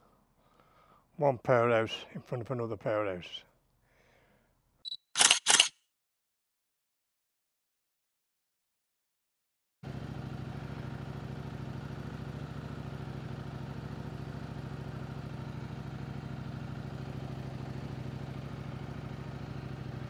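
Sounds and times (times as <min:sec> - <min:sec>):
motorcycle engine idling: 0:09.8 - 0:20.0.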